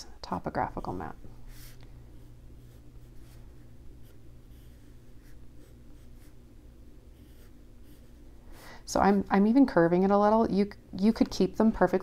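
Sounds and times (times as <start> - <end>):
faint low hum: 0.0 - 12.0
pencil scratching on paper: 1.5 - 6.4, 7.1 - 9.2.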